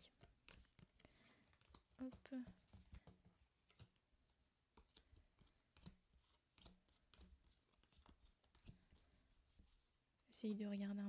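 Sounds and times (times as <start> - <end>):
cards tapping and sliding: 0.1 - 4.0, 4.7 - 9.7.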